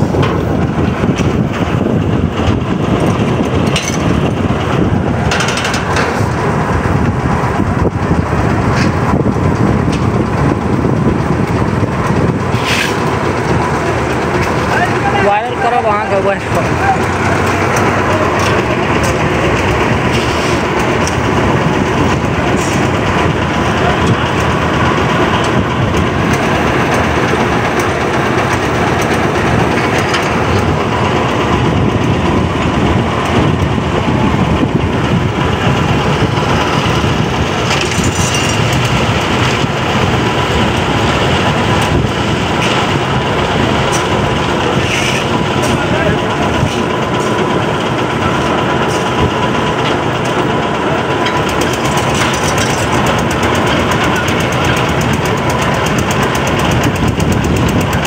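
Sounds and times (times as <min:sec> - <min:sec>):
concrete mixer running: 0:00.0 - 0:58.0.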